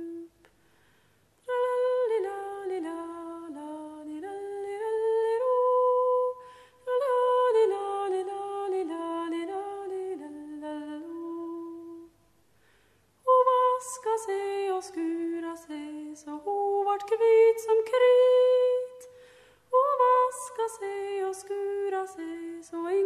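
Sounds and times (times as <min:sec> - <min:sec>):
woman humming a folk melody: 0:00.0 - 0:00.5.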